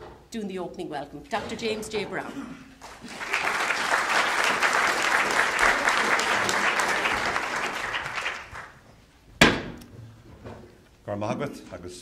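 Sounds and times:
audience applauding: 0:02.8 - 0:08.8
sharp thump: 0:09.4 - 0:09.8.

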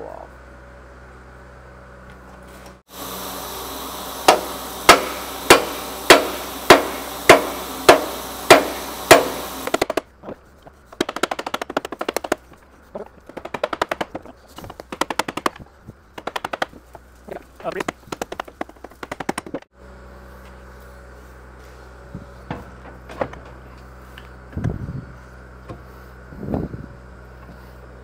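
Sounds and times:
hammer striking metal: 0:04.2 - 0:10.0.

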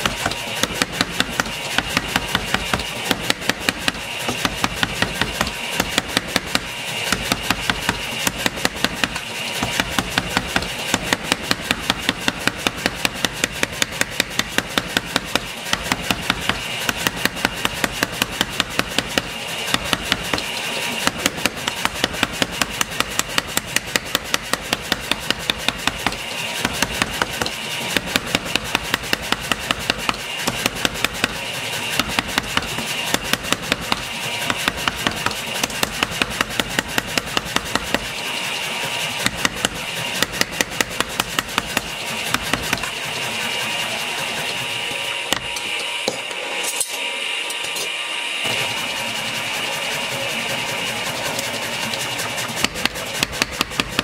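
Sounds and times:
power hammer pounding steel: 0:00.0 - 0:54.0.

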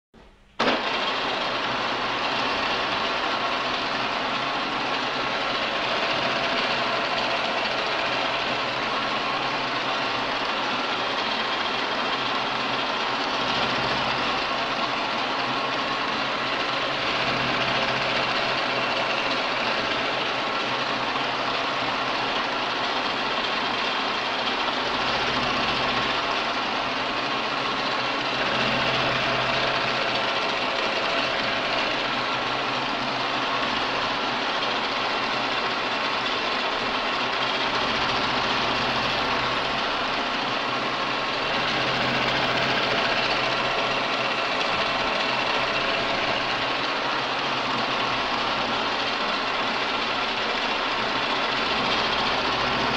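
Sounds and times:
milling machine hum: 0:00.2 - 0:52.9
cutter cutting metal: 0:28.0 - 0:32.6, 0:41.2 - 0:49.7.

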